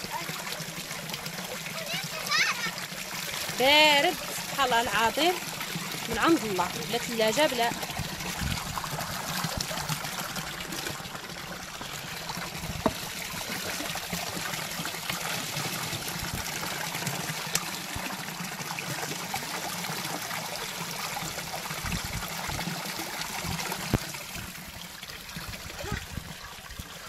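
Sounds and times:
spring water trickling and splashing: 0:00.0 - 0:27.0.

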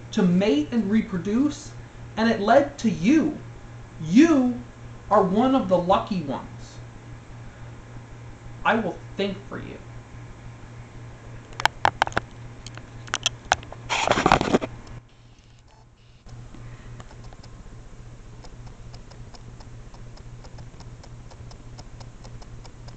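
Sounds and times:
camera handling clicks and knocks: 0:11.5 - 0:13.7
loud rustling scrape: 0:13.7 - 0:14.8
faint even ticking: 0:18.4 - 0:22.9.

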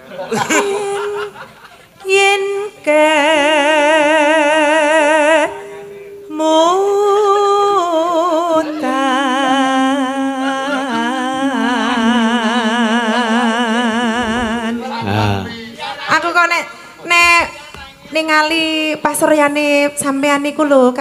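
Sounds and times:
woman singing with vibrato: 0:00.4 - 0:01.4, 0:02.0 - 0:15.6.

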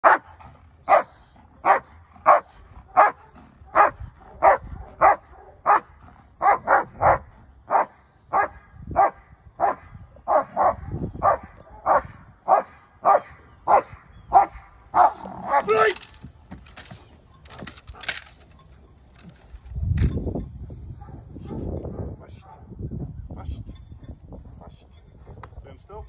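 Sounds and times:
dog barking: 0:00.0 - 0:15.7, 0:21.0 - 0:22.7.

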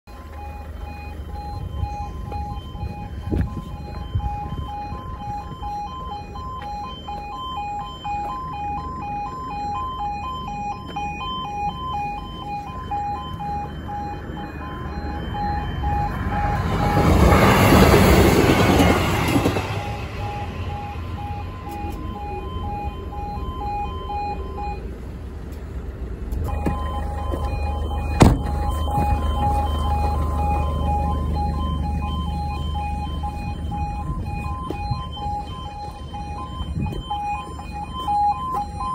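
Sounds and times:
level crossing alarm warbling: 0:00.1 - 0:24.9, 0:26.5 - 0:38.9
train rushing past: 0:14.8 - 0:21.6.

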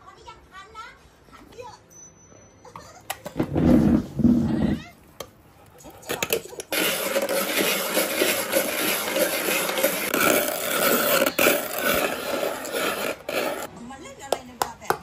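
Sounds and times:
ice shaver grinding ice: 0:06.0 - 0:13.7
ice shaver clicks: 0:06.2 - 0:13.7.

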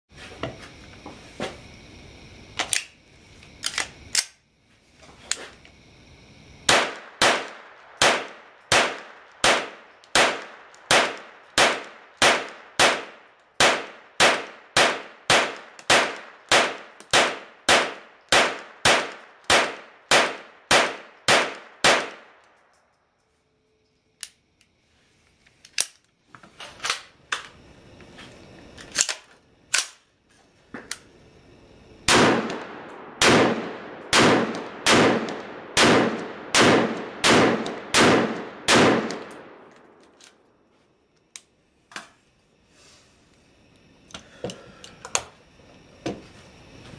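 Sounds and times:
gunshots: 0:06.7 - 0:22.4, 0:32.1 - 0:39.4.

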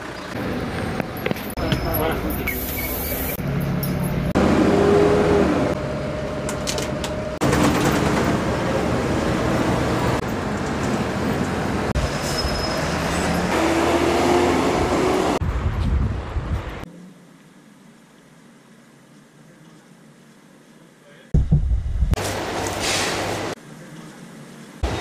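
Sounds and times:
bus engine and road noise: 0:00.0 - 0:17.1, 0:22.1 - 0:25.0.

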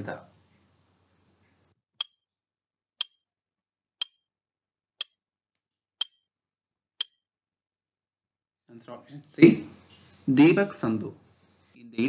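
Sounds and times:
timer ticking clicks: 0:02.0 - 0:02.2, 0:03.0 - 0:03.3, 0:04.0 - 0:04.2, 0:05.0 - 0:05.2, 0:06.0 - 0:06.2, 0:07.0 - 0:07.2.

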